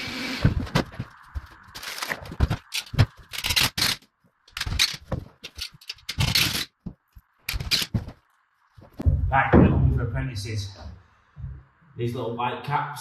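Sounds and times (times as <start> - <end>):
screws rattling in plastic box: 1.8 - 6.8.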